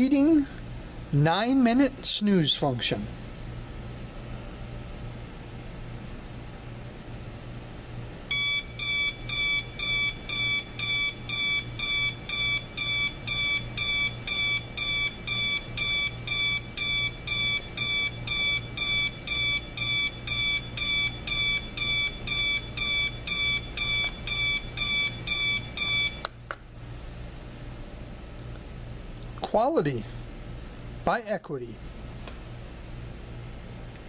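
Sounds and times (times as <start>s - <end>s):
alarm clock beeping: 8.3s - 26.2s.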